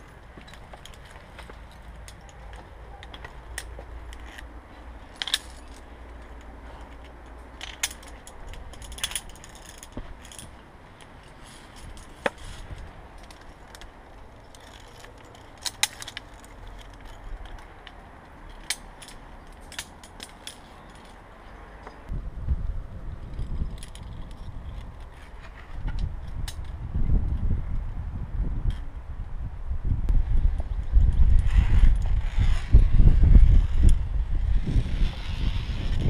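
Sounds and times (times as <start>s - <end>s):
metal carabiners clinking: 0.0s - 22.1s, 23.2s - 26.8s
steady low rumble: 0.0s - 36.0s.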